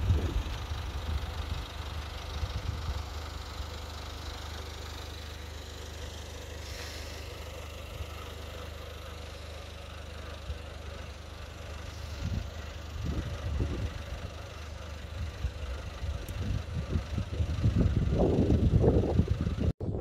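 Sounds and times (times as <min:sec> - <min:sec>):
engine running: 0:00.0 - 0:20.0
light even hiss: 0:06.6 - 0:07.4.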